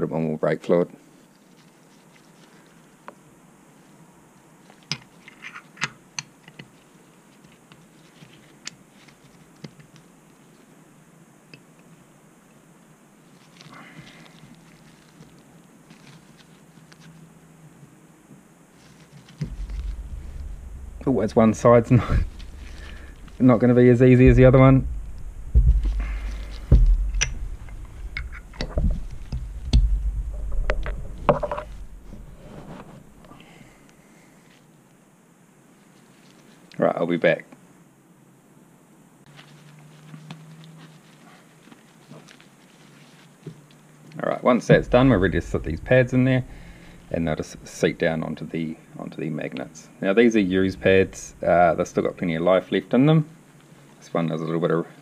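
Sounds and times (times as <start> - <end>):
dull thumps and light clicks: 19.0 - 33.4, 44.7 - 47.8.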